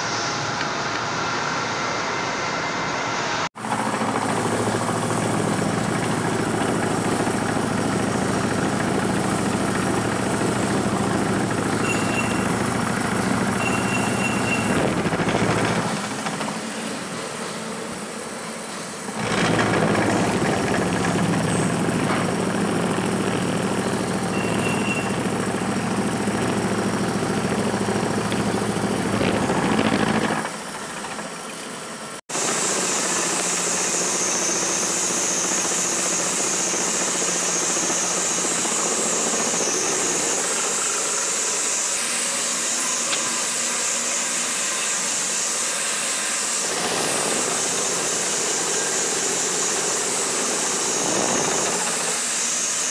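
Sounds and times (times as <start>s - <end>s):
milling machine hum: 0.0s - 52.9s
high-pitched cutting whine: 4.1s - 16.0s, 19.1s - 31.2s.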